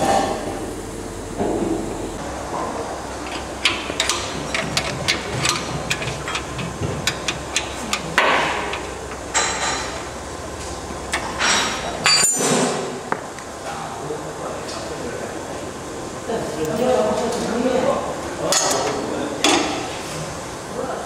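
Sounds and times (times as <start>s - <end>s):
spanner clinking on metal bolts: 3.3s - 9.9s.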